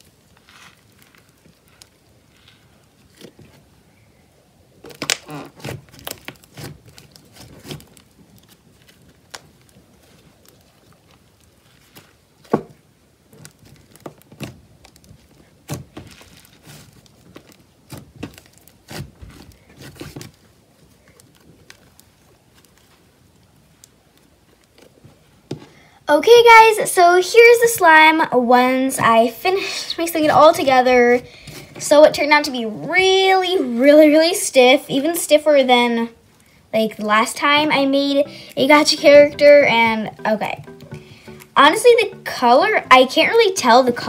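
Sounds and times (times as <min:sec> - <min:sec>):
clay slime crackling and popping: 0:00.0 - 0:03.9, 0:04.8 - 0:44.0.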